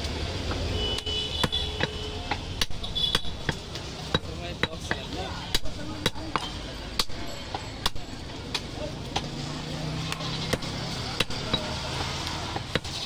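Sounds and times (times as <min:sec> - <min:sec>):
cleaver chopping meat on wood: 0:00.4 - 0:09.4, 0:10.0 - 0:13.0.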